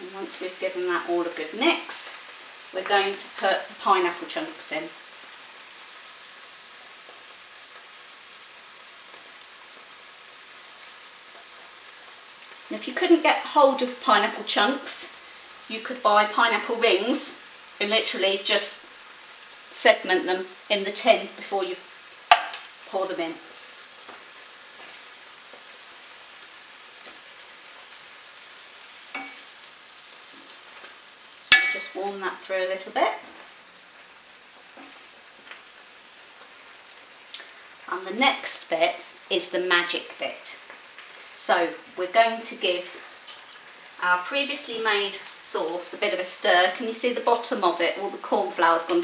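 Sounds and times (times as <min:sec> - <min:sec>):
food sizzling in a pan: 0:00.0 - 0:49.0.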